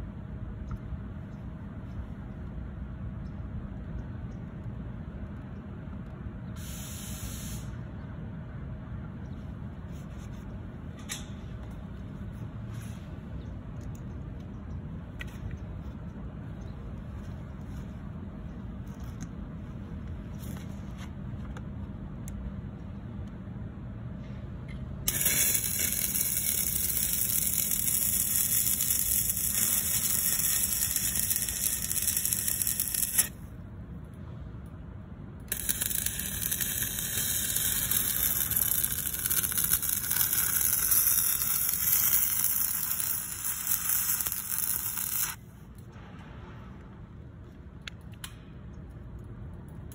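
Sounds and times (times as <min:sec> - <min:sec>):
welding arc crackling: 0:25.1 - 0:33.4, 0:35.4 - 0:45.4.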